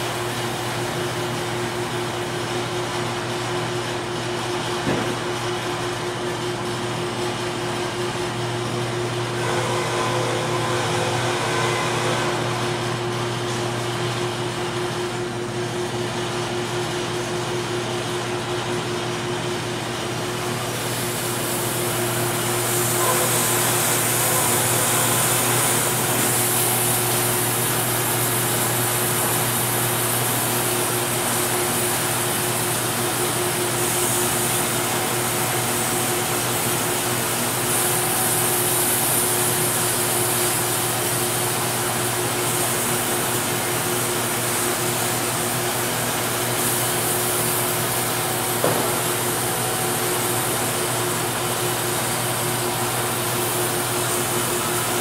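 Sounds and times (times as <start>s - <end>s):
machine hum: 6.7s - 39.8s.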